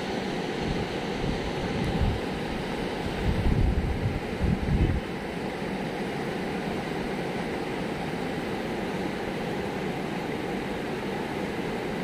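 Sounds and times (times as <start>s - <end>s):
water rushing over a weir: 0.0s - 12.0s.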